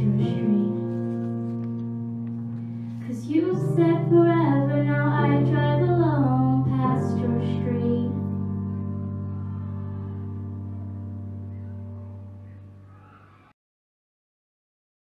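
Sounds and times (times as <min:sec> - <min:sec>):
girl singing into a microphone: 0:00.0 - 0:00.9, 0:03.0 - 0:08.5
instrumental held chords: 0:00.0 - 0:13.3.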